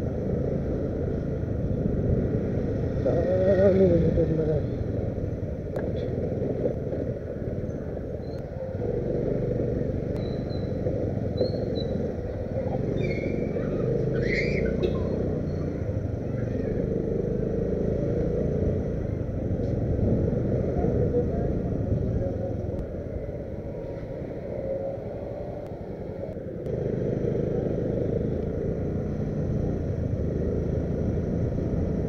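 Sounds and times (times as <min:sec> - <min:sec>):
motorcycle engine and road rumble: 0:00.0 - 0:32.0.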